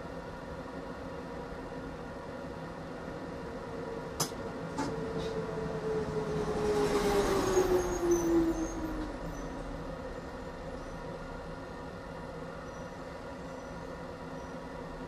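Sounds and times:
tram running on track: 0.0 - 15.0
sharp clicks of tram: 4.1 - 5.4.

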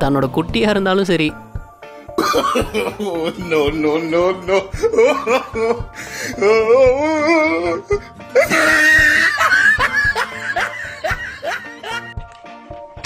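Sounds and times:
background music: 0.0 - 13.0
person laughing: 2.2 - 12.2
wavering cry: 3.0 - 12.1.

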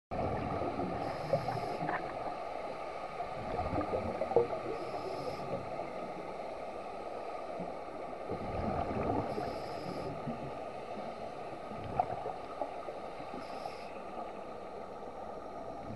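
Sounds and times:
bubbles crackling and gurgling: 0.1 - 2.4, 3.1 - 5.8, 8.2 - 10.6, 11.6 - 12.8
muffled underwater noise: 0.2 - 2.6, 3.2 - 6.4, 7.6 - 15.9.

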